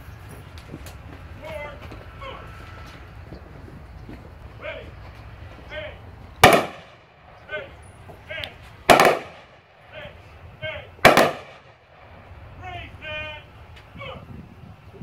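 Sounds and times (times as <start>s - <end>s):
rifle volleys with echo: 6.4s - 7.3s, 8.9s - 10.0s, 11.0s - 12.2s.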